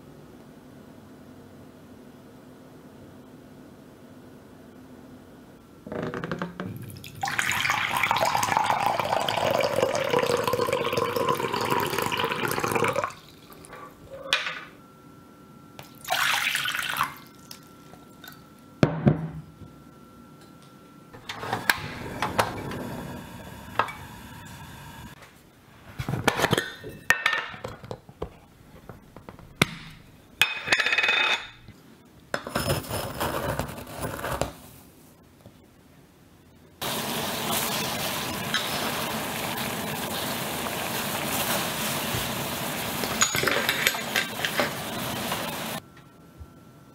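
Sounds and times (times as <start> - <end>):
water filling a vessel: 6.8 - 13.7, 16.0 - 17.5
kitchenware clinking and knocking: 26.2 - 28.0, 30.4 - 31.6, 43.0 - 44.8.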